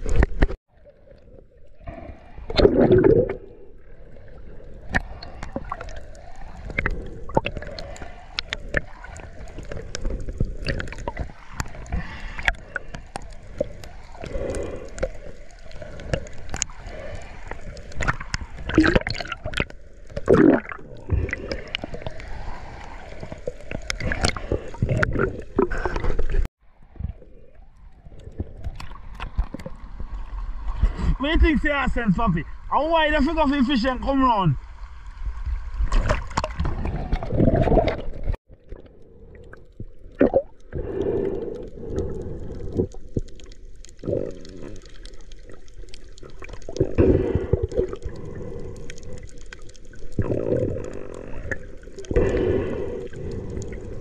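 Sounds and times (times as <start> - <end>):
water gurgling and sloshing: 0.0 - 54.0
water splashes and knocks: 35.8 - 38.8.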